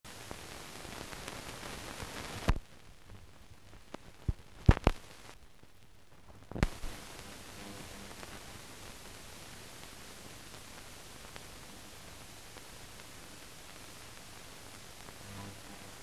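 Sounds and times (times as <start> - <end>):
film soundtrack hiss: 0.1 - 16.0
film clicks and pops: 2.4 - 2.7, 3.7 - 5.2, 6.3 - 6.9.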